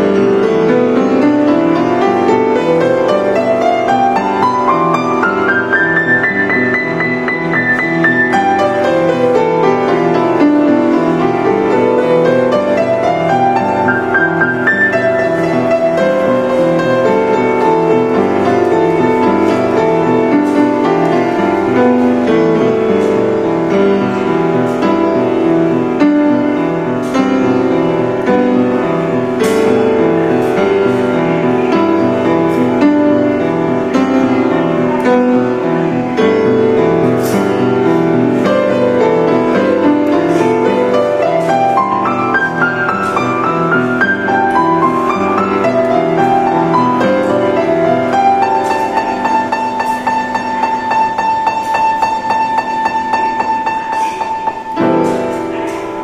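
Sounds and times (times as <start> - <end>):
upright piano playing: 0.0 - 56.0.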